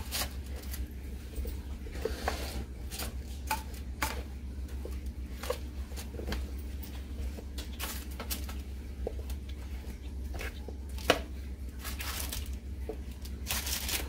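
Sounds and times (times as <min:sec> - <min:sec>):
steady low hum: 0:00.0 - 0:14.0
spatula scraping baking sheet: 0:01.8 - 0:03.2.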